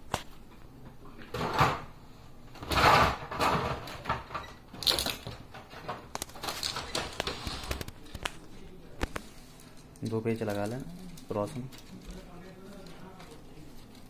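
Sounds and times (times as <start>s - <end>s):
plastic and metal parts clattering: 2.6s - 8.4s, 9.8s - 14.0s.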